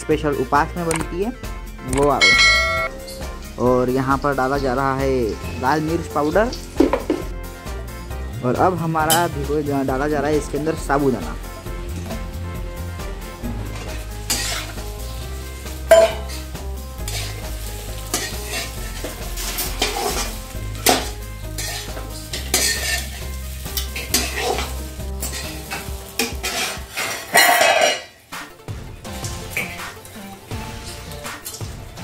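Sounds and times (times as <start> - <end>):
potatoes sizzling: 3.4 - 32.0
spatula scraping in pan: 13.6 - 28.0.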